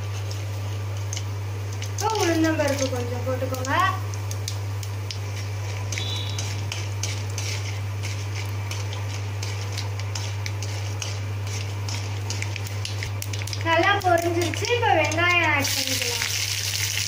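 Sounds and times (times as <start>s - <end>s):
seeds sizzling in hot oil: 0.0s - 17.0s
low hum: 4.0s - 13.6s.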